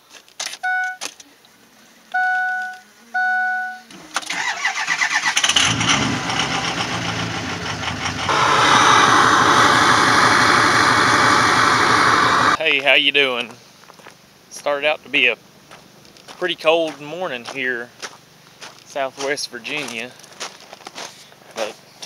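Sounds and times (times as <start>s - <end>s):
diesel engine cranking and idling: 3.9s - 12.6s.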